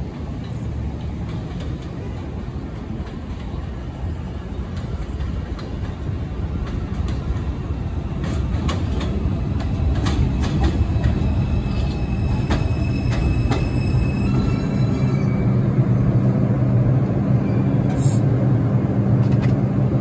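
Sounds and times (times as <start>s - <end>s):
subway train rumbling: 0.0s - 20.0s
wheels clacking over rail joints: 4.7s - 14.6s.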